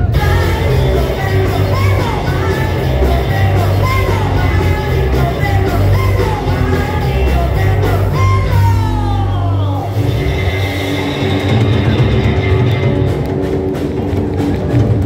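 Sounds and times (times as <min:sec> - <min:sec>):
woman singing: 0:00.0 - 0:10.0
live rock band playing: 0:00.0 - 0:15.0.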